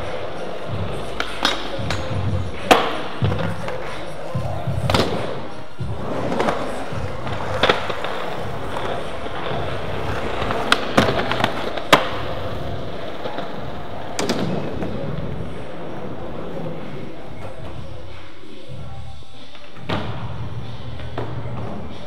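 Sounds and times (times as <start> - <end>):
skateboard wheels rolling on concrete: 0.0 - 22.0
skateboard clacking down: 6.2 - 13.4.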